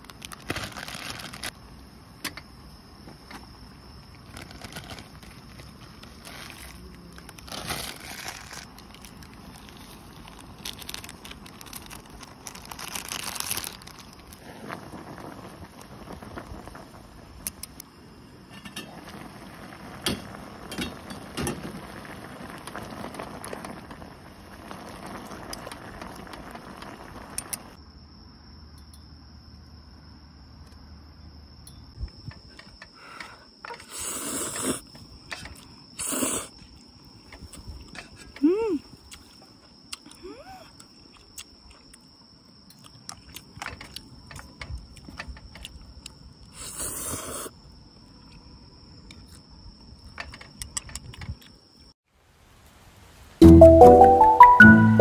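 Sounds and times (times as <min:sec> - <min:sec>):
water boiling: 0:04.2 - 0:27.8.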